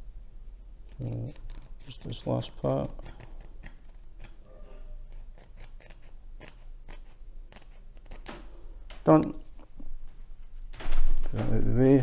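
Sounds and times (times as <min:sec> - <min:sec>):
scissors snipping canvas: 0:00.9 - 0:04.5, 0:05.1 - 0:08.4.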